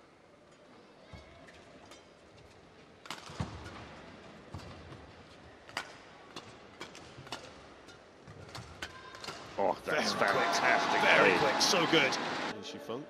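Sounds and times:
rackets striking shuttlecock: 5.7s - 9.6s.

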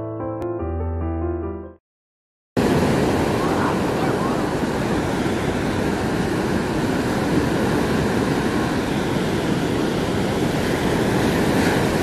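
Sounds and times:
heavy surf breaking: 2.6s - 12.0s.

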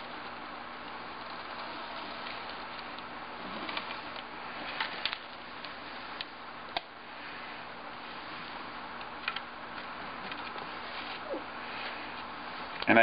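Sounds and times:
steady background hiss: 0.0s - 13.0s
foil tape clicking and crinkling: 0.8s - 6.9s.

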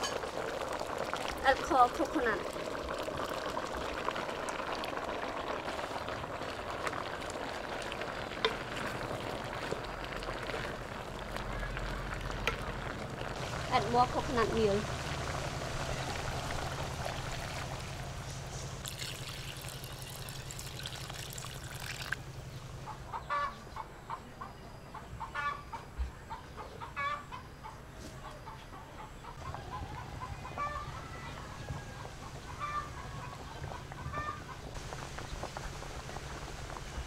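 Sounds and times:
pot of curry hissing on fire: 0.0s - 22.3s, 34.6s - 37.0s
chickens clucking: 22.8s - 34.8s.

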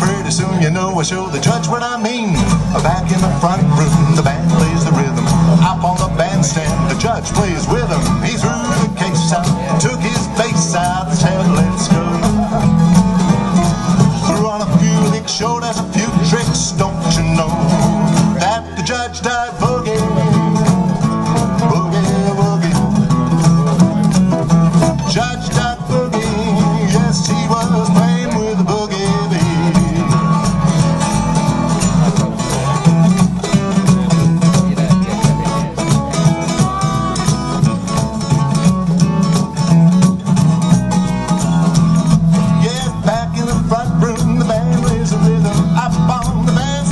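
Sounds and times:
acoustic guitars strumming: 0.0s - 46.9s
percussion steady beat: 2.4s - 46.9s.

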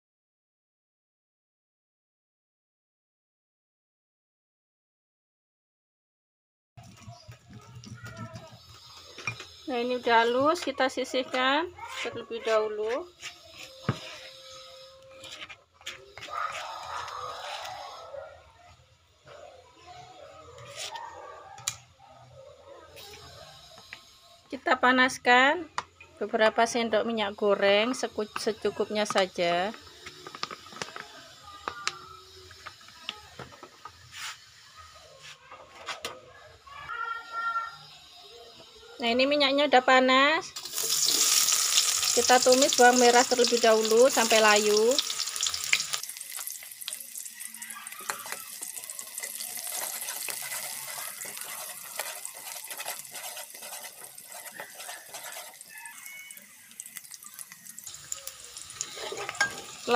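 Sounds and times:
oil heating in a wok: 23.0s - 35.0s, 39.4s - 59.9s
metal spatula stirring: 40.8s - 59.9s.

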